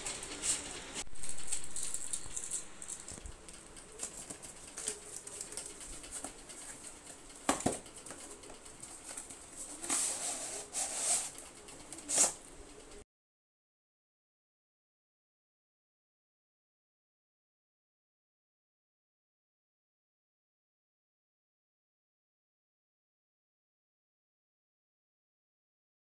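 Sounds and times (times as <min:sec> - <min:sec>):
scissors cutting cardboard: 0:00.0 - 0:12.5.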